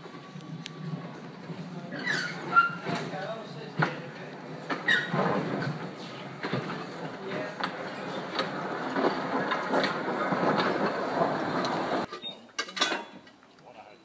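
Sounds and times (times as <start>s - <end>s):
steam locomotive clanking and hissing: 0.0s - 13.3s.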